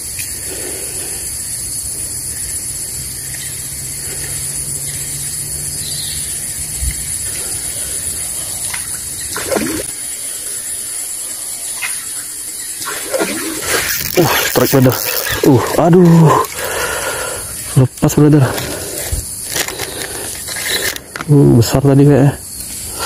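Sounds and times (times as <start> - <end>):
steady high hiss: 0.0 - 23.0
fish splashing at surface: 12.7 - 15.5.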